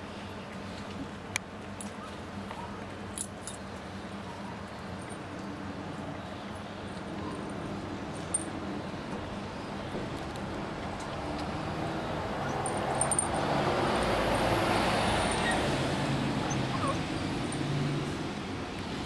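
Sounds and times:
puppies whimpering and yipping: 15.3 - 17.2.

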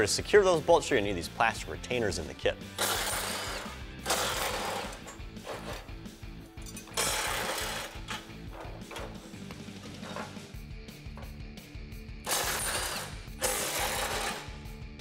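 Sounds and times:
background music: 0.0 - 15.0
impact driver hammering: 12.3 - 14.6.

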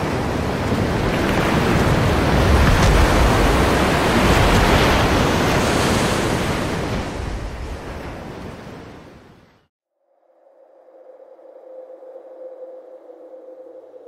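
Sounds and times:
ocean waves breaking: 0.0 - 9.6.

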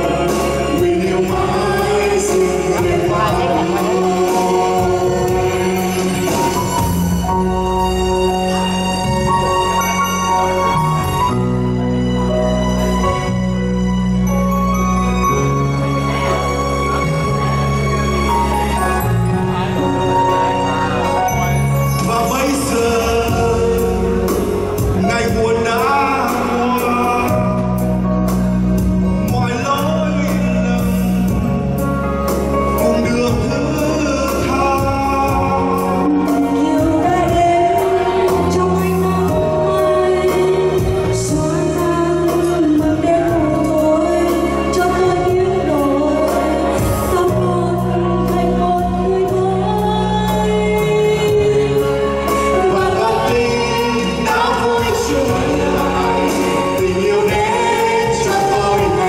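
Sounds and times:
man and woman singing duet: 0.0 - 7.4, 20.8 - 27.8, 32.8 - 59.0
backing music: 0.0 - 59.0.

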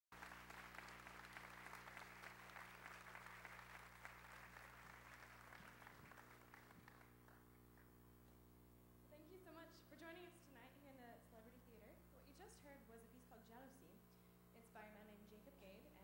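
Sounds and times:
audience applauding: 0.1 - 7.6.

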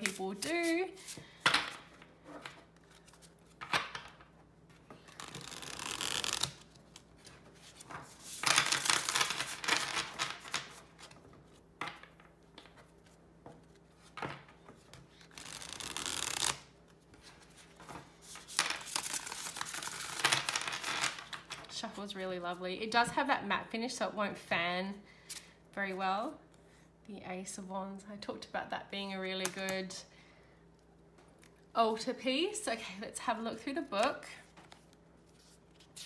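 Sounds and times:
cards rustling while shuffled: 0.0 - 1.2, 4.7 - 11.6, 12.7 - 16.6, 17.2 - 21.7.

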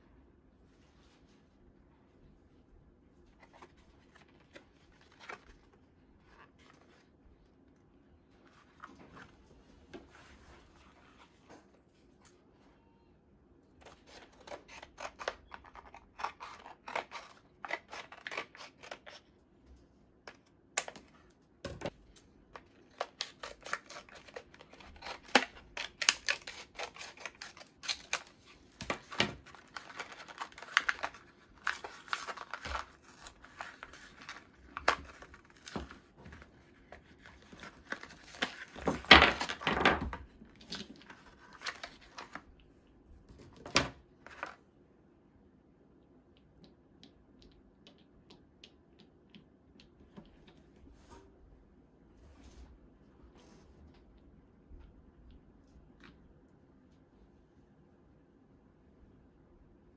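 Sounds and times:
scissors snipping plastic and card: 13.8 - 19.2, 22.9 - 35.9
card tearing from plastic: 22.9 - 35.9.

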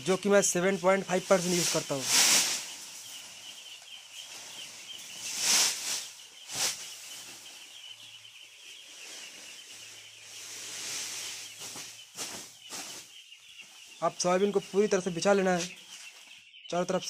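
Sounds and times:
high chirping: 0.0 - 17.0
grain pouring from sack: 1.6 - 2.8.

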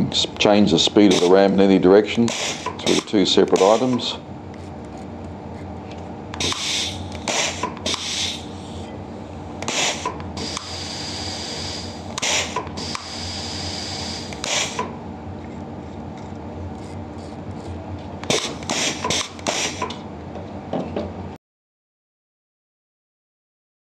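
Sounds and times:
low steady hum: 0.0 - 21.4
compressed air hissing: 1.0 - 1.5, 2.3 - 4.2, 6.4 - 8.9, 9.6 - 15.0, 18.3 - 19.9.

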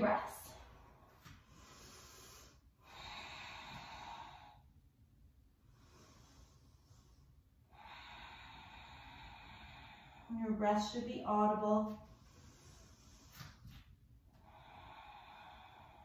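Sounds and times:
woman breathing through nose: 1.3 - 4.8, 5.7 - 10.3, 12.1 - 16.0.

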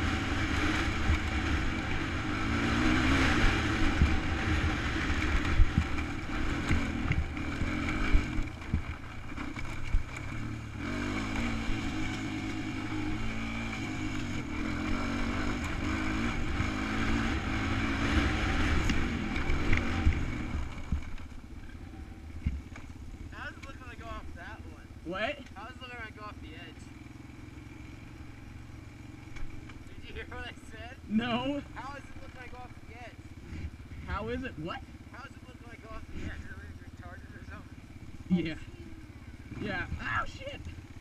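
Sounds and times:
atv engine running: 0.0 - 41.0.

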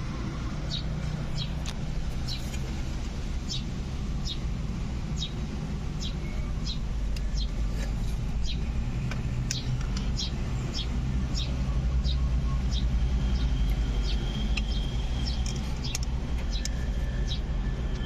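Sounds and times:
small bird chirping: 0.7 - 2.6, 6.0 - 7.7, 8.4 - 8.7, 9.4 - 17.5.

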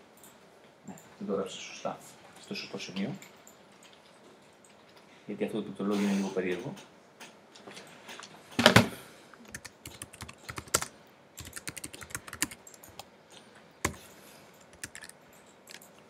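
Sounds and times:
computer keyboard typing: 9.4 - 13.1, 13.8 - 16.0.

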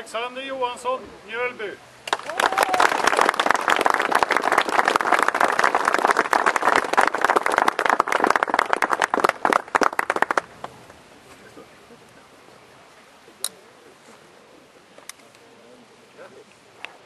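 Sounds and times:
crowd applauding: 2.0 - 10.8.

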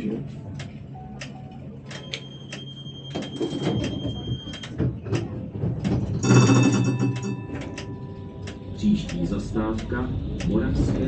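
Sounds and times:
high warning beep: 1.0 - 4.7.

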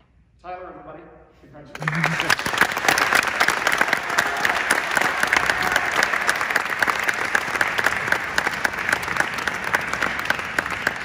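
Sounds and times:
audience applauding: 1.8 - 11.0.

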